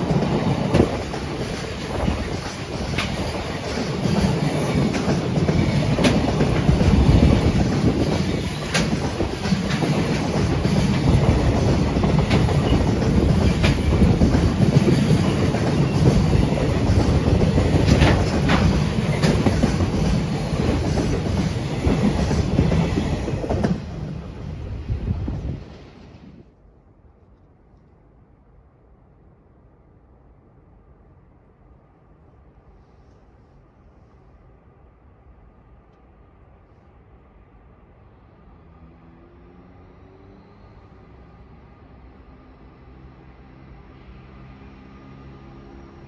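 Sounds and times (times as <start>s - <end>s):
clickety-clack of rail joints: 0.0s - 26.3s
train wheels rumbling on rail: 0.0s - 26.6s.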